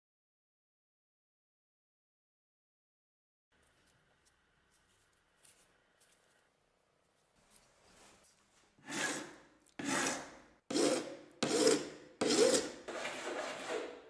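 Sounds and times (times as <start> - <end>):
hand file rasping on wood: 8.8 - 14.0.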